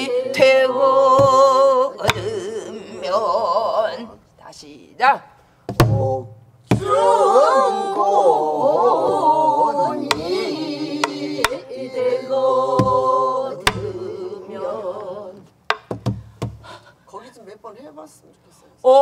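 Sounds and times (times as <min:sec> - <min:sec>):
barrel drum strokes: 0:12.7 - 0:14.0.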